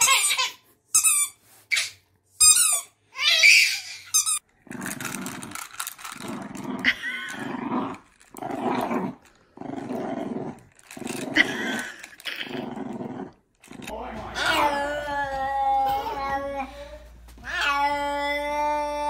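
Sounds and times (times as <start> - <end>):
small dog growling: 4.6 - 14.8.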